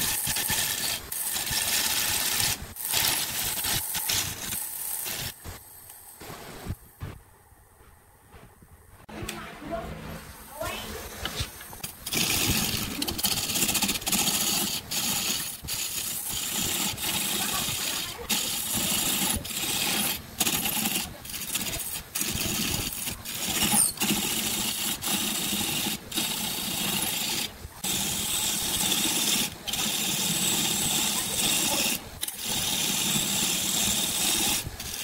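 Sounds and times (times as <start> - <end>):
turning gouge cutting wood: 0.0 - 5.6, 10.9 - 35.0
lathe motor running: 11.3 - 35.0.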